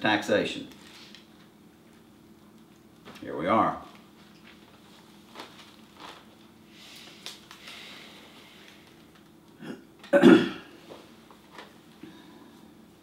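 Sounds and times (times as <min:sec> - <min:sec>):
person's throat noise: 0:09.6 - 0:10.7.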